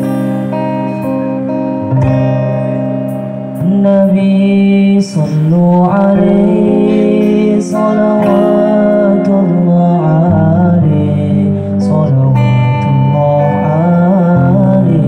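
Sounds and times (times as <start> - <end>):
strummed acoustic guitars: 0.0 - 15.0
man singing into a microphone: 3.6 - 15.0.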